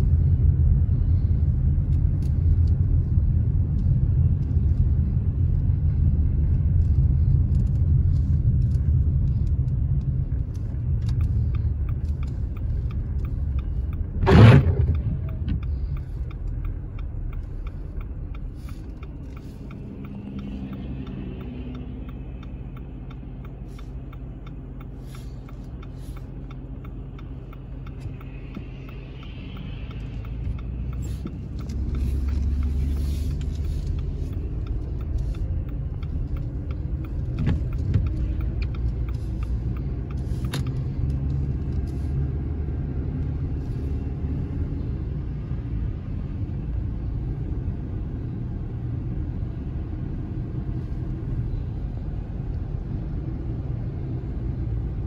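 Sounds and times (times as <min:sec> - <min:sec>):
car road and engine rumble: 0:00.0 - 0:55.0
regular ticking: 0:01.5 - 0:44.8.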